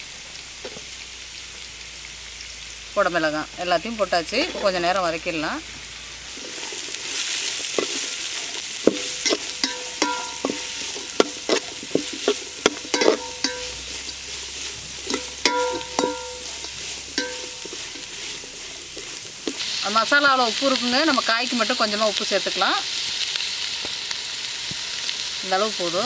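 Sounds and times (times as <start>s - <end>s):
vegetables sizzling in oil: 0.0s - 26.0s
metal spatula clinking on pan: 8.9s - 14.3s, 15.0s - 18.1s.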